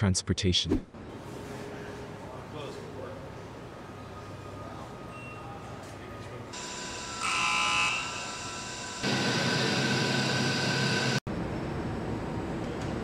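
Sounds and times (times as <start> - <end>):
machinery hum: 6.6 - 13.0.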